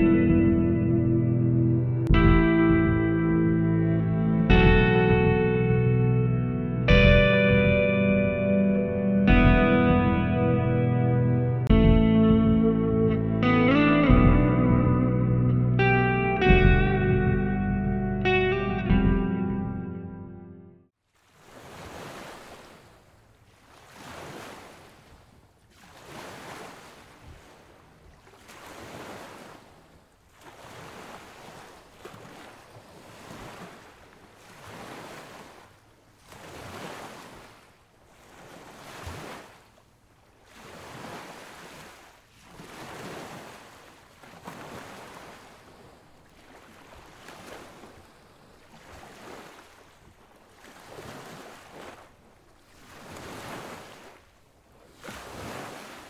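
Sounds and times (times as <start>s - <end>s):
surf washing in: 21.2s - 56.0s.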